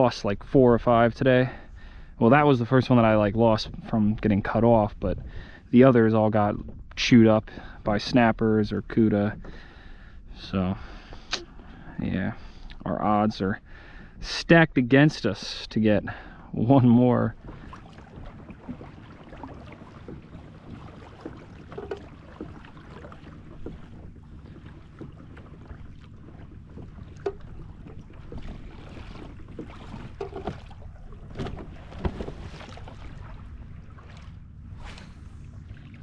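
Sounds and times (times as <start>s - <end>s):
water lapping at kayak hull: 0.0s - 36.0s
light knocks and clicks: 20.0s - 25.8s, 26.7s - 28.6s, 29.5s - 30.7s.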